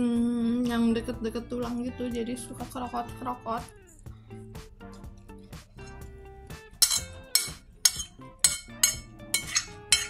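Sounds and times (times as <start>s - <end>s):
soft background music: 0.0s - 10.0s
cutlery clinking against plate: 6.8s - 10.0s.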